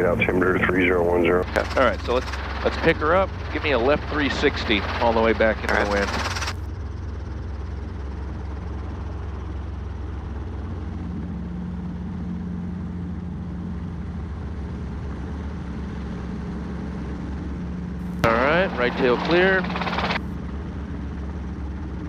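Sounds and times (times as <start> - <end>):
humming tone: 0.0 - 6.9
helicopter engine and rotors drone: 0.0 - 22.0.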